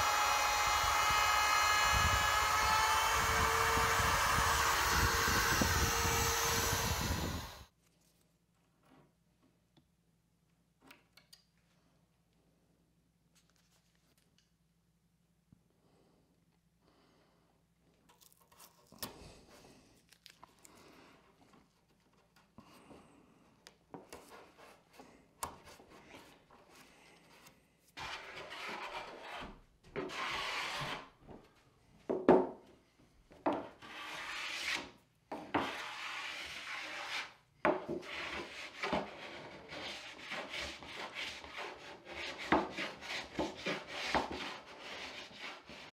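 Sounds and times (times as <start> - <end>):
hand tool scraping wood edge: 0.1 - 7.6, 27.3 - 31.2, 33.5 - 45.9
tape rustling and clicking: 20.0 - 20.8.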